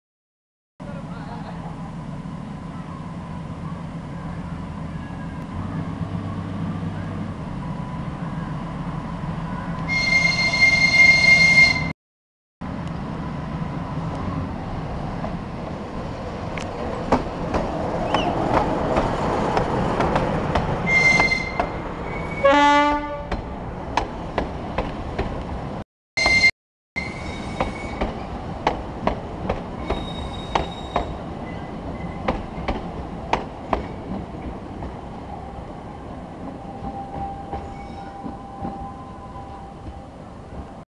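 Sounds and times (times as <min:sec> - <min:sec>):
diesel locomotive running: 0:00.8 - 0:11.9
train horn blast: 0:09.9 - 0:11.9, 0:22.4 - 0:23.4.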